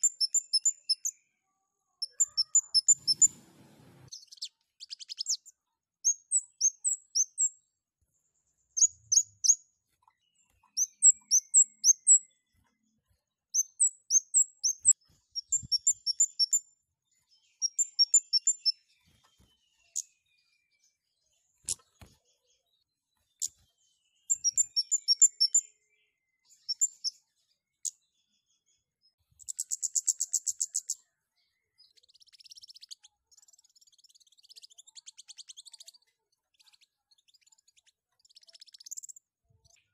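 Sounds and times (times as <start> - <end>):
songbird chirping: 0.0 - 39.9
buzzy rattling bird trill: 2.0 - 3.4, 24.3 - 25.6.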